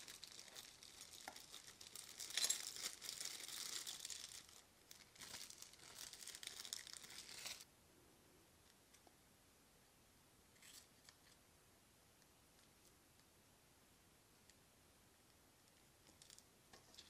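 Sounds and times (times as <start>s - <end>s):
plastic wrapping crinkling: 0.0s - 7.6s.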